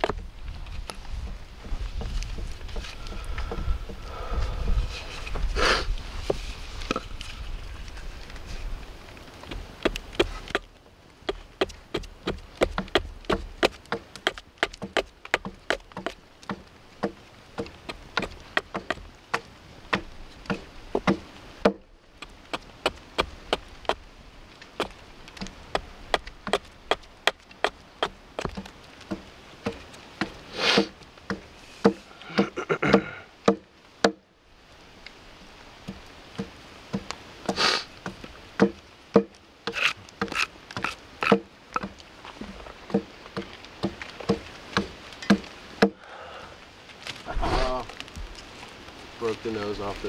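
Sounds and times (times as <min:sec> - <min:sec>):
axe chopping wood: 0:09.4 - 0:10.7, 0:11.3 - 0:24.1, 0:24.8 - 0:34.2, 0:36.4 - 0:42.0, 0:42.9 - 0:46.0.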